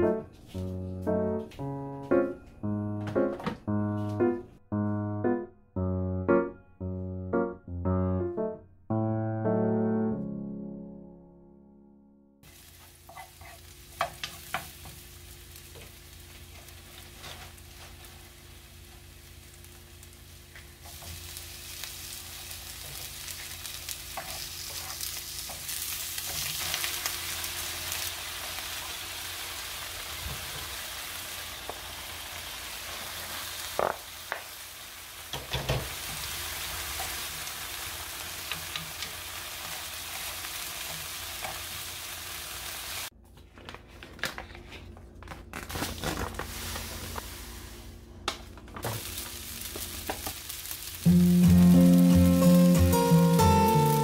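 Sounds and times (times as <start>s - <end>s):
food sizzling in oil: 12.4s - 43.1s, 48.9s - 54.0s
spatula stirring in pan: 12.7s - 14.8s, 22.8s - 26.7s.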